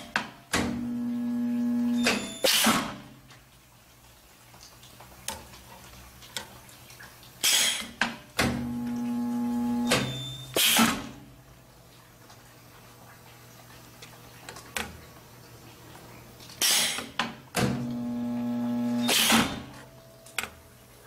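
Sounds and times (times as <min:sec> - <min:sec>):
welding transformer hum: 0:00.7 - 0:02.4, 0:08.4 - 0:11.6, 0:17.6 - 0:21.0.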